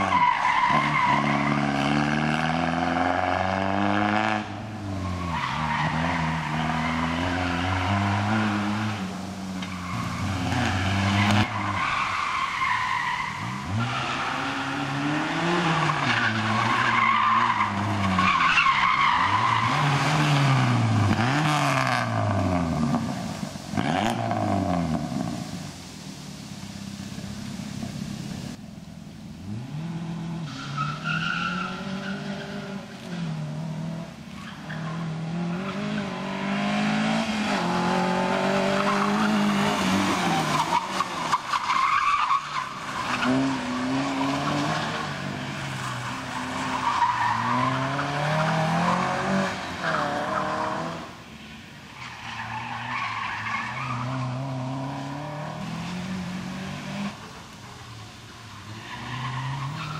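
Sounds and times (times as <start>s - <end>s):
tyres squealing and skidding: 0.0s - 3.4s, 4.8s - 22.6s, 30.4s - 33.4s, 34.3s - 51.2s, 51.9s - 56.1s, 58.4s - 59.9s
car engines revving: 0.0s - 59.9s.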